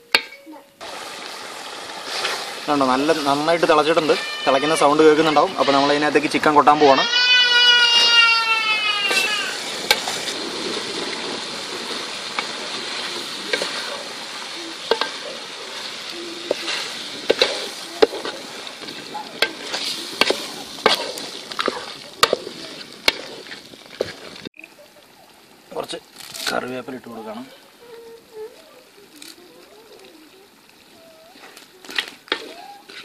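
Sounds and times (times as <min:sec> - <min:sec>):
wooden spatula scraping pot: 0:11.0 - 0:24.5, 0:31.4 - 0:33.0.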